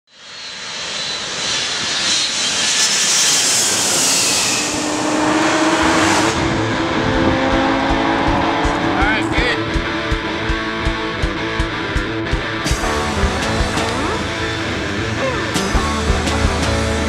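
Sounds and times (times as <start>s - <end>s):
jet airliner roar: 0.1s - 17.0s
music with steady tones and beat: 6.8s - 17.0s.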